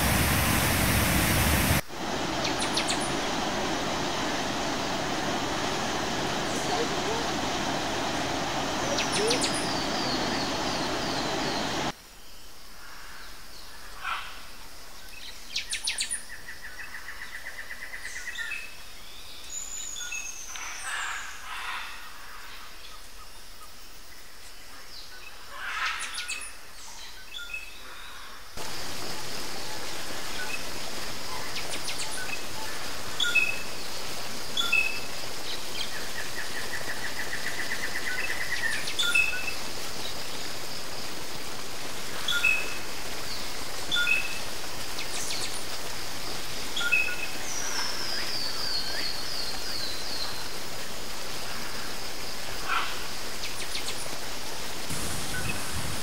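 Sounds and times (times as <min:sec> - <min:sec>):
waterfall rushing: 0:00.0 - 0:12.0, 0:28.6 - 0:56.0
birds chirping and trilling: 0:02.4 - 0:03.3, 0:08.0 - 0:11.9.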